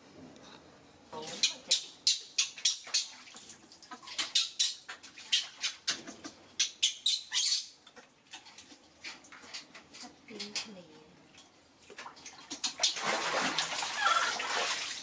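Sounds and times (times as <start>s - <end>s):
water splashing: 2.6s - 5.7s, 11.8s - 15.0s
baby monkey squeaking: 6.6s - 7.8s.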